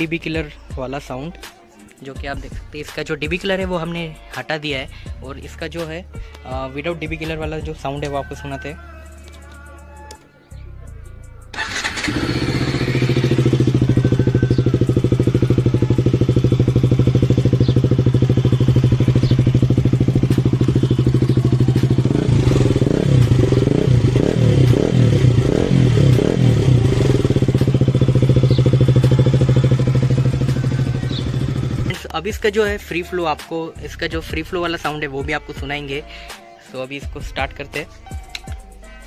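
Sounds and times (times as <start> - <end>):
motorcycle engine starting: 11.5 - 32.0
loud motorcycle engine idling: 11.6 - 31.9
motorcycle throttle blips: 11.6 - 32.0.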